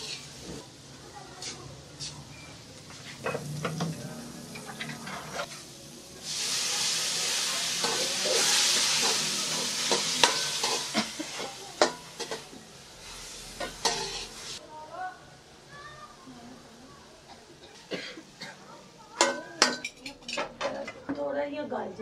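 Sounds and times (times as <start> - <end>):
sizzling hiss of steam: 0.0 - 14.6
vegetables frying in a pan: 0.0 - 21.0
ladle scraping and knocking pan: 7.8 - 12.5.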